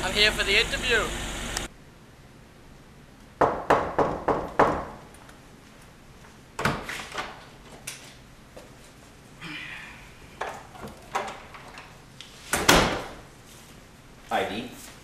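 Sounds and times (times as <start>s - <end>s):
knocking on wooden door: 3.4s - 5.0s.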